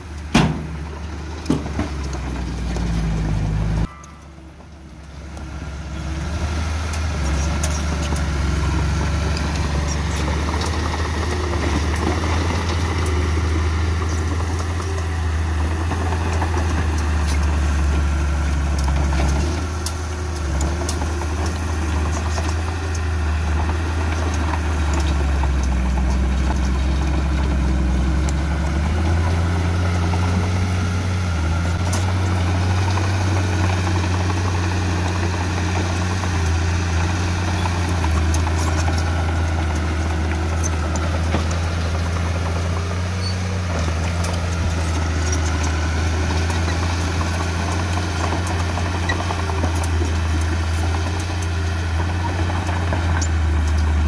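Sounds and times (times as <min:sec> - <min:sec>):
heavy diesel engine running: 0:00.0 - 0:54.0
metallic clanks and knocks: 0:00.3 - 0:02.9.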